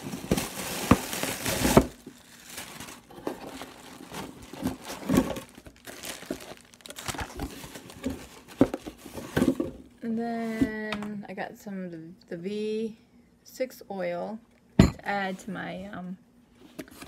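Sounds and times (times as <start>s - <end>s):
packaging crinkling and rustling: 0.0s - 9.8s.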